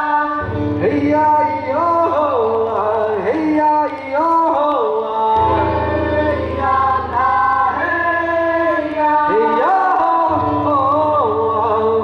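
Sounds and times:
group chanting in vocables: 5.4 - 12.0.

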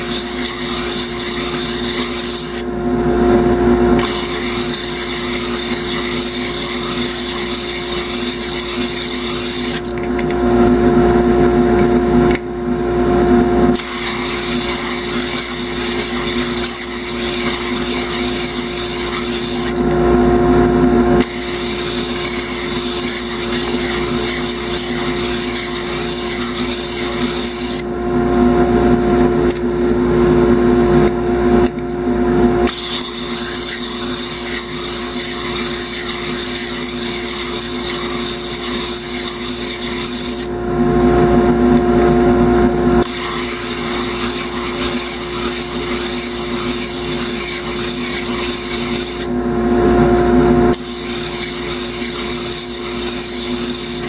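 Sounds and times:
wood sanding on disc: 0.0 - 2.6, 4.0 - 9.8, 13.8 - 19.8, 21.2 - 27.8, 32.7 - 40.5, 43.0 - 49.3, 50.8 - 54.0
lathe motor hum: 0.0 - 2.8, 4.0 - 10.0, 13.8 - 19.9, 21.2 - 27.9, 32.7 - 40.5, 43.0 - 49.3, 50.8 - 54.0.

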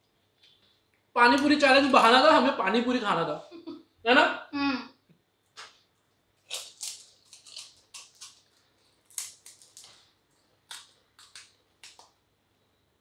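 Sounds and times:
fried shells cracking: 6.4 - 12.2.

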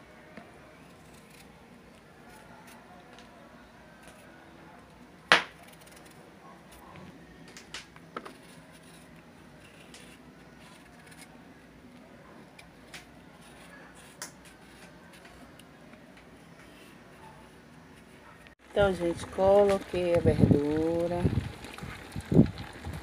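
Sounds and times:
knife scraping while peeling: 8.3 - 11.4.

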